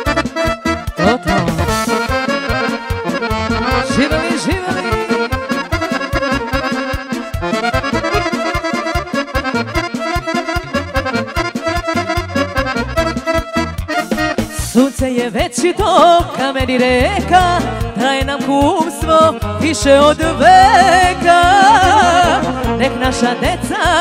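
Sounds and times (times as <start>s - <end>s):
accordion: 0.0s - 24.0s
band playing folk music: 0.0s - 24.0s
saxophones: 1.0s - 2.8s.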